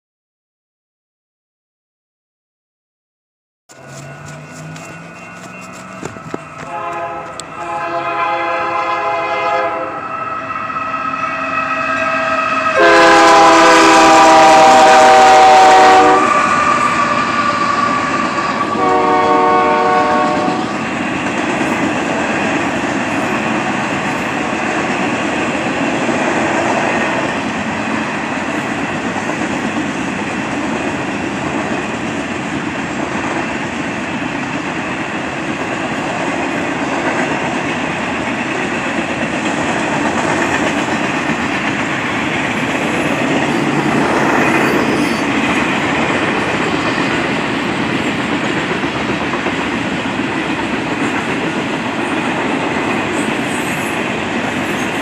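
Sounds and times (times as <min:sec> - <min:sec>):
locomotive horn blasts: 0:06.4 - 0:10.1, 0:11.1 - 0:20.7.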